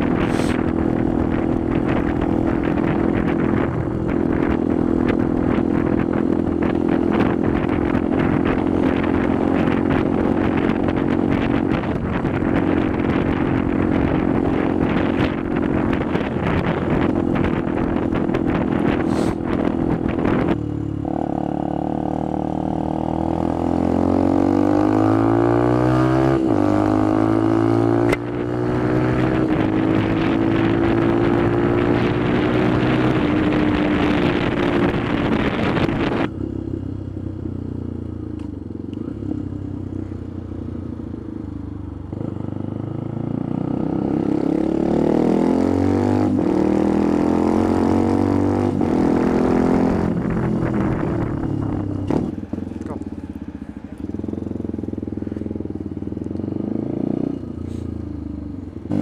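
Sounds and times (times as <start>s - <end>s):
wind noise on microphone: 0.0s - 21.6s, 22.4s - 36.8s, 42.1s - 53.0s
motorcycle engine running: 0.0s - 59.0s.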